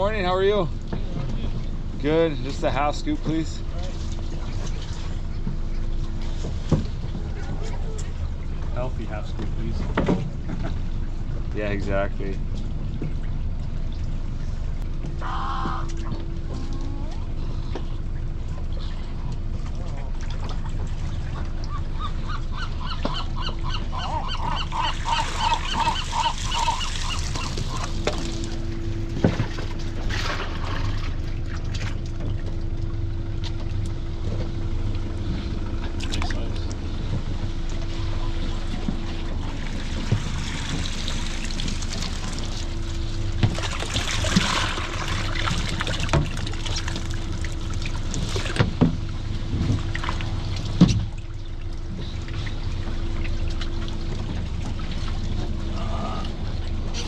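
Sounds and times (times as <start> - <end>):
aerated water rushing: 0.0 - 57.0
steady hum: 0.0 - 57.0
gull laughing calls: 15.2 - 16.0, 21.7 - 28.0
water washing: 18.0 - 57.0.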